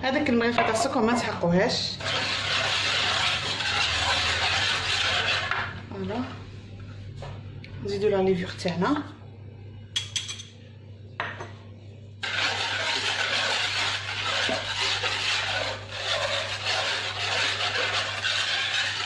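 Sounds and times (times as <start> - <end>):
whisk beating in wooden bowl: 2.0 - 6.0, 12.2 - 19.0.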